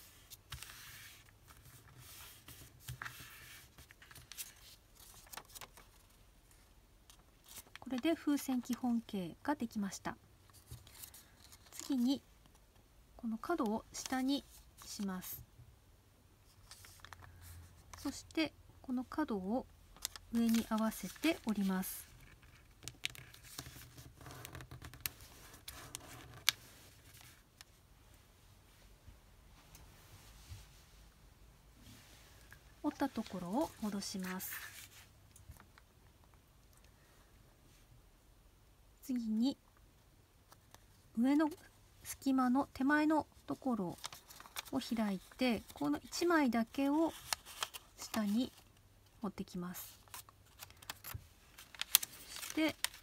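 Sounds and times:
paper rustling and creasing: 0:00.0 - 0:08.0, 0:10.5 - 0:12.1, 0:16.5 - 0:18.2, 0:20.0 - 0:27.7, 0:43.9 - 0:46.2, 0:47.0 - 0:48.8, 0:49.9 - 0:53.0.

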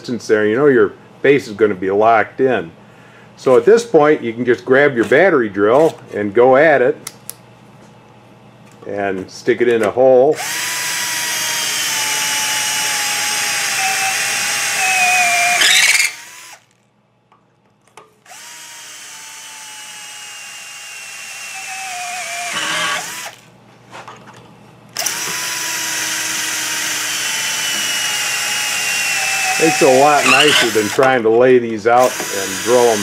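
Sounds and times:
cordless drill drilling metal: 0:10.4 - 0:16.7, 0:18.3 - 0:23.4, 0:25.0 - 0:31.2, 0:32.0 - 0:33.0.

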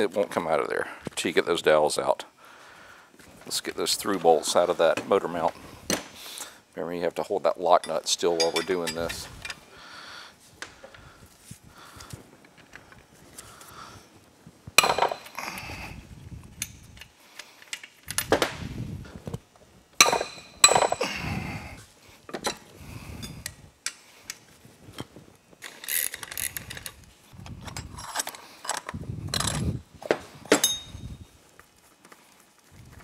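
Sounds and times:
steel tools clinking on metal: 0:07.8 - 0:09.6, 0:20.0 - 0:21.1, 0:30.5 - 0:31.1.

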